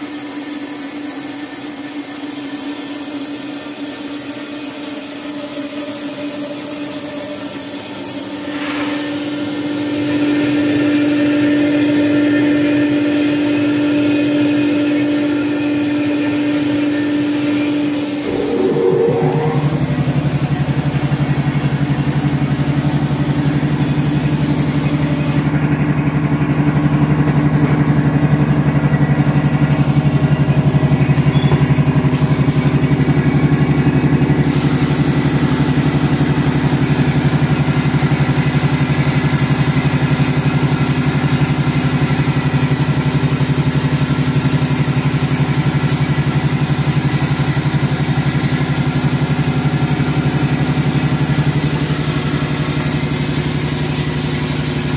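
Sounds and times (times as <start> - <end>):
machine hum: 7.7 - 22.0
rush of air: 18.1 - 20.7.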